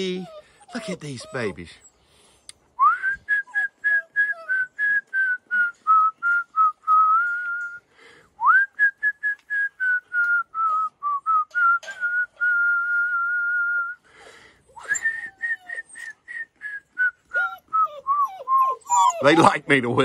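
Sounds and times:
man whistling: 0:02.8 - 0:07.8, 0:08.4 - 0:14.1, 0:14.7 - 0:19.2.

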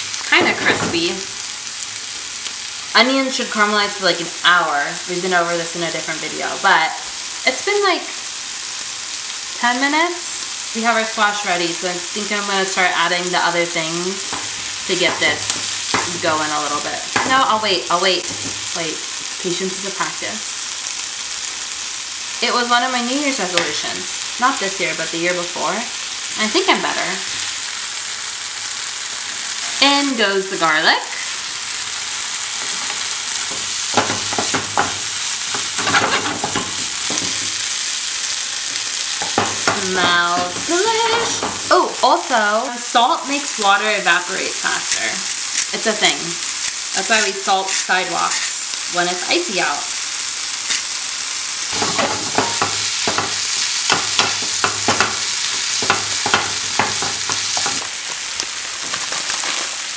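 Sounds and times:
onions sizzling in a frying pan: 0:00.0 - 0:59.9
wooden spoon scraping and knocking: 0:32.6 - 0:37.6, 0:51.7 - 0:57.9.

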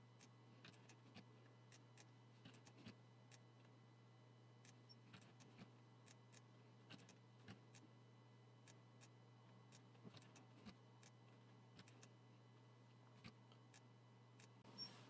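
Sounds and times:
low steady hum: 0:00.0 - 0:15.0
computer mouse clicks: 0:00.2 - 0:01.8, 0:02.4 - 0:03.4, 0:04.7 - 0:07.8, 0:08.7 - 0:11.2, 0:11.8 - 0:12.2, 0:13.2 - 0:14.9.

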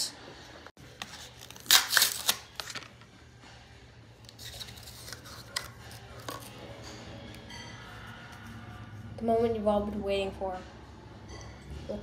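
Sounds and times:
cardboard ripping: 0:01.0 - 0:02.8
plastic packaging crackling: 0:01.2 - 0:03.0.

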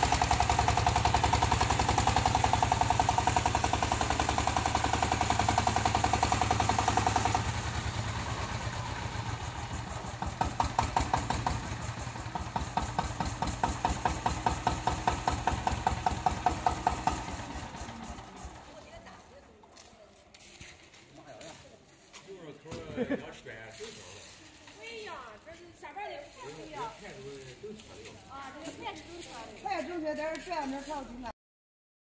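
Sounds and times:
small tractor engine running: 0:00.0 - 0:21.9.

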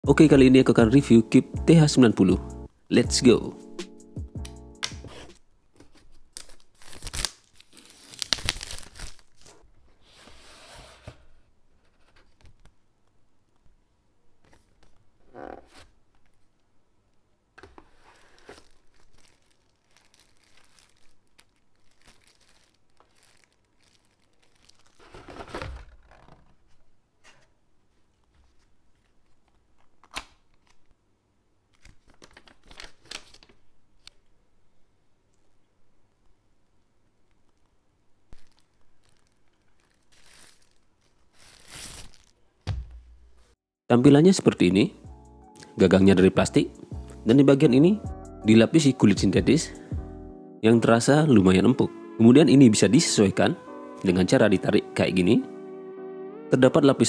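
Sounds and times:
paper manual rustling: 0:05.2 - 0:10.4, 0:17.8 - 0:27.4, 0:31.7 - 0:33.7, 0:38.4 - 0:42.4
shrink-wrap tearing: 0:06.3 - 0:09.6, 0:18.1 - 0:26.5, 0:38.4 - 0:42.4
plastic bag crinkling: 0:06.4 - 0:09.6, 0:18.2 - 0:26.2, 0:38.3 - 0:42.6.

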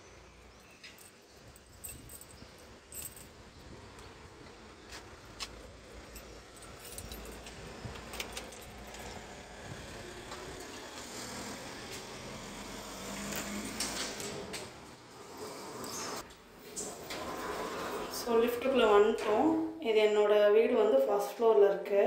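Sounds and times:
keys jingling: 0:00.7 - 0:03.5, 0:06.0 - 0:09.2.

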